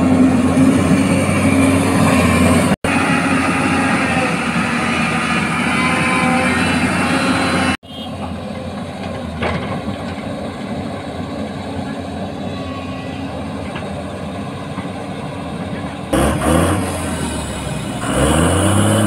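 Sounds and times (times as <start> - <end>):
excavator diesel engine and hydraulics: 0.0 - 19.0.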